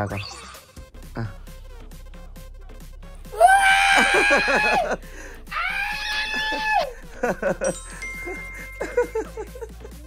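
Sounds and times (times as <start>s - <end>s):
person screaming in excitement: 3.3s - 7.0s.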